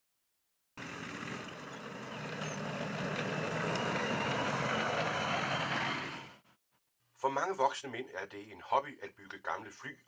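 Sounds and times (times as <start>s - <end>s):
heavy vehicle engine running: 0.8s - 6.5s.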